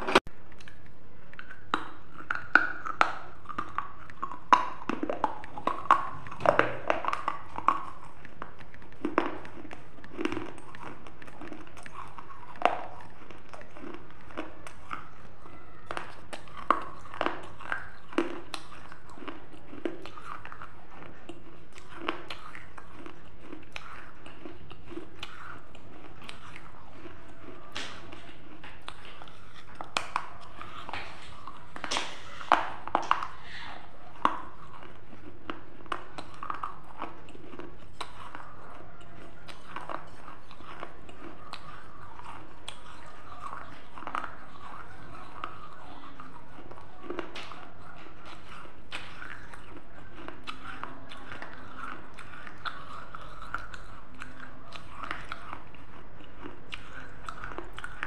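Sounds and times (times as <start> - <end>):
chewing: 0.0 - 58.0
teeth crunching clay: 0.0 - 58.0.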